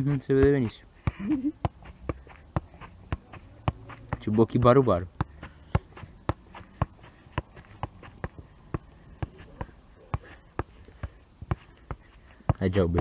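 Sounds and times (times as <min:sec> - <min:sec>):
football kicks: 0:00.0 - 0:13.0.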